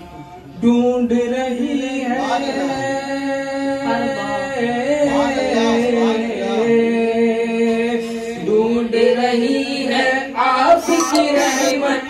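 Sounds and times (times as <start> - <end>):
man singing long held notes: 10.8 - 11.8.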